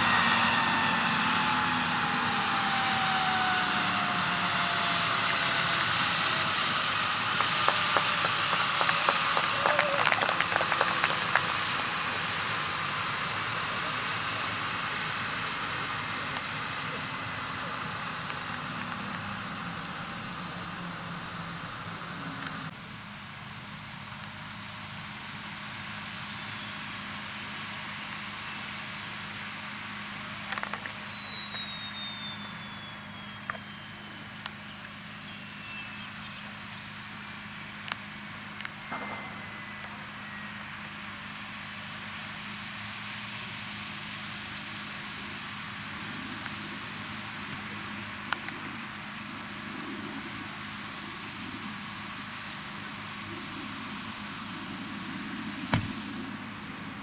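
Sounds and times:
low hum: 0.0 - 43.3
turbine whine falling in pitch: 0.0 - 57.0.

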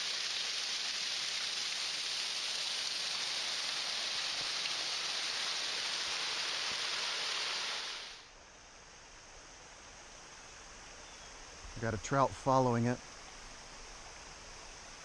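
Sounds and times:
waterfall splashing onto rocks: 0.0 - 8.2.

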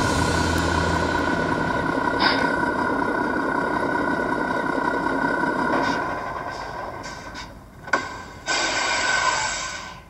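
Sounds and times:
sharp engine burst: 0.0 - 5.6
diesel truck idling through speaker: 0.0 - 9.9.

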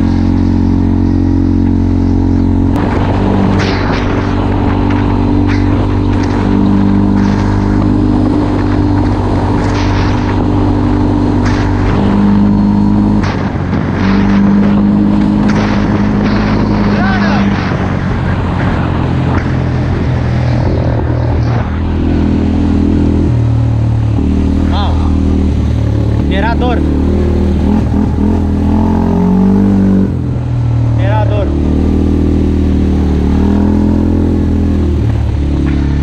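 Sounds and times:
atv engine revving: 0.0 - 36.0
knocks and rattles: 2.8 - 12.5.

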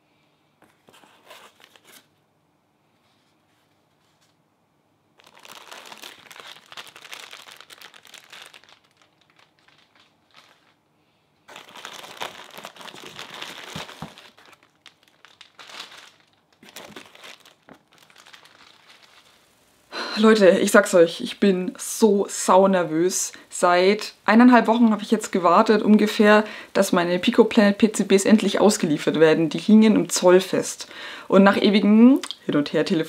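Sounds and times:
plastic bags crinkling: 5.2 - 10.9, 11.5 - 19.6.

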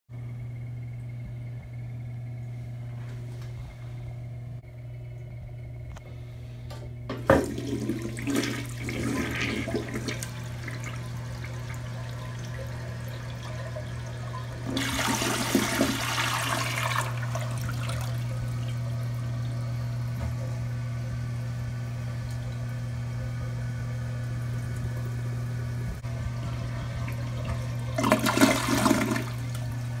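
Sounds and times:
steady low hum: 0.1 - 30.0
water rushing in toilet bowl: 7.2 - 25.3, 26.0 - 30.0.

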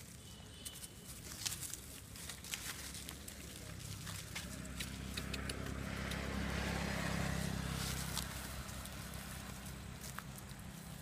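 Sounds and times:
vehicle passing by: 2.9 - 11.0.

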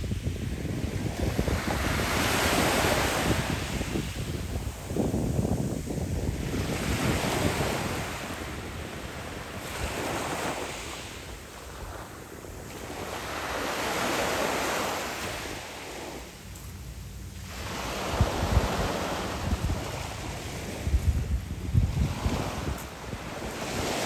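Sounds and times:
waves washing on pebble beach: 0.0 - 16.8
wind rumble on microphone: 0.0 - 24.0.

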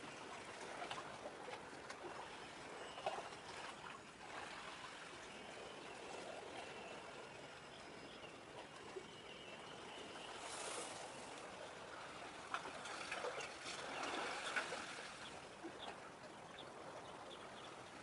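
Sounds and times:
water lapping: 0.0 - 18.0.

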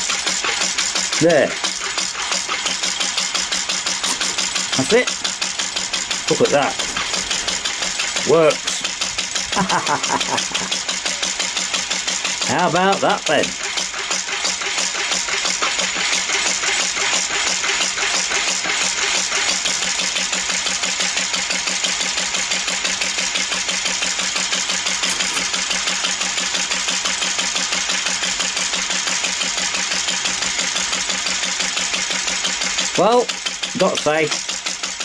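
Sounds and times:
engine running steadily: 0.0 - 35.0.

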